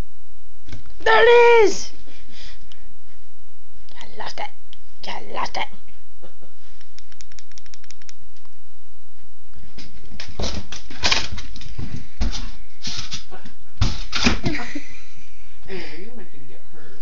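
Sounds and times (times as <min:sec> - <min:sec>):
puppy scuffles and thumps: 0:09.7 - 0:14.6
puppy claws clicking on wood floor: 0:10.2 - 0:11.7.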